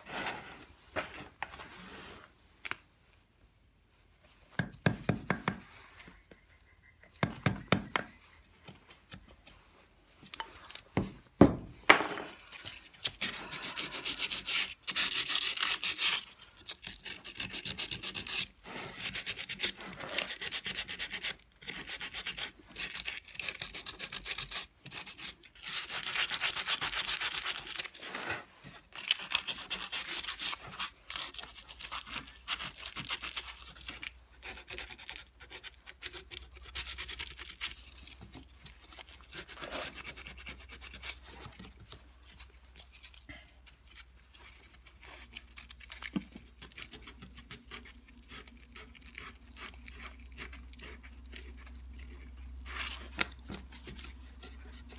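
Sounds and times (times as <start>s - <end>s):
carving tool scraping wood: 12.5s - 54.9s.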